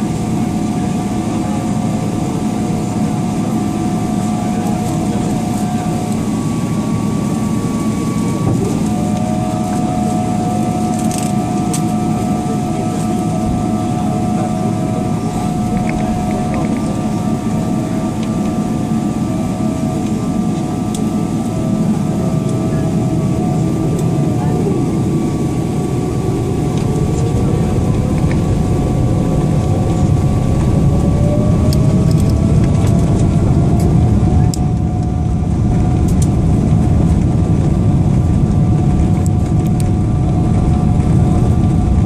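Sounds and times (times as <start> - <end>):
aircraft cabin rumble: 0.0 - 42.0
jet engine whine: 0.0 - 42.0.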